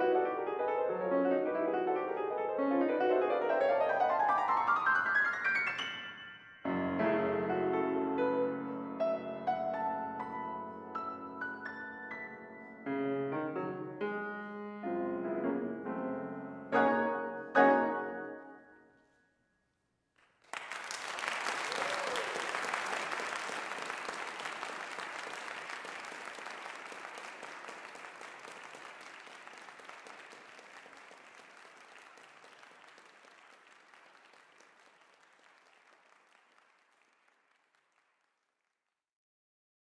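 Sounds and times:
audience applauding: 20.2s - 38.5s.

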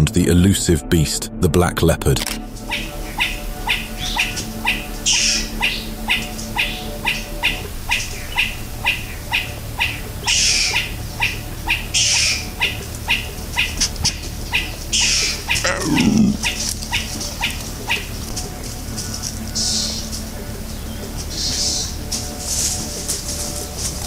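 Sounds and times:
animal chirping call: 2.7s - 18.1s.

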